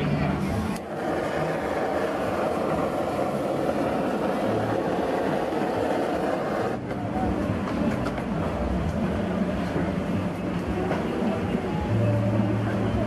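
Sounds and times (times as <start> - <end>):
blowtorch flame hissing: 0.4 - 6.9.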